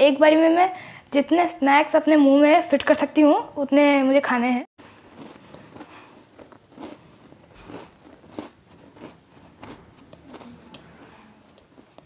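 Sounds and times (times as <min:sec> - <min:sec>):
person chewing crunchy snacks: 0:04.9 - 0:12.0.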